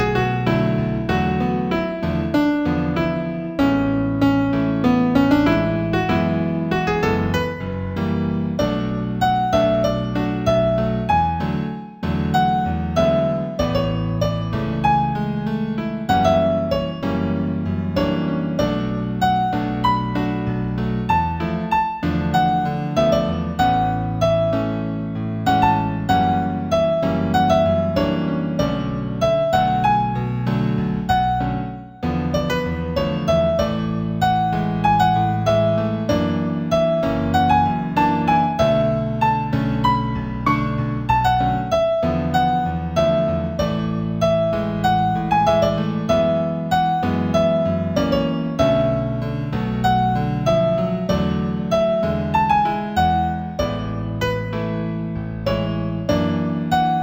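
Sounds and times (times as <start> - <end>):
low piano chords: 0.0 - 57.0
new-age keyboard piece: 0.0 - 57.0
piano melody: 0.0 - 57.0.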